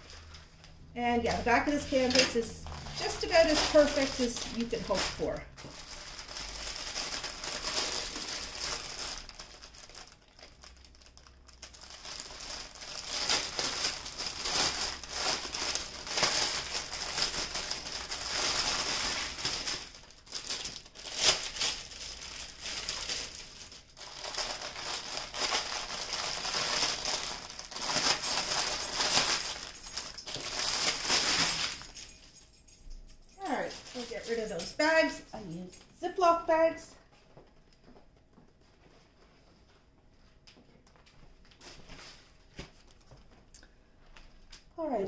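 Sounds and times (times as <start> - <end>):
packets rustling and clicking: 0.0 - 35.2
plastic bag crinkling: 0.0 - 35.5.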